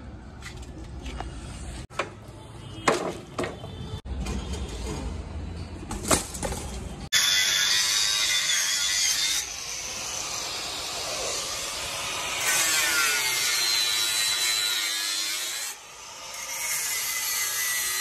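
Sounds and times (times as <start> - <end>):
angle grinder cutting steel mesh: 7.2 - 18.0.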